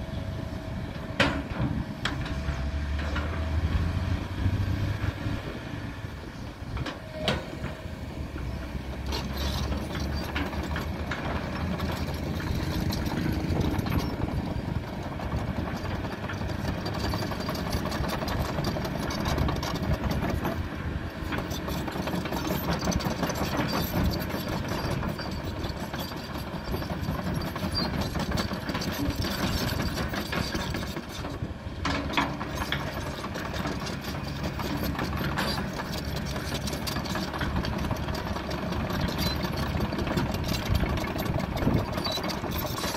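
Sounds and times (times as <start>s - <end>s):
excavator diesel engine running: 0.0s - 42.9s.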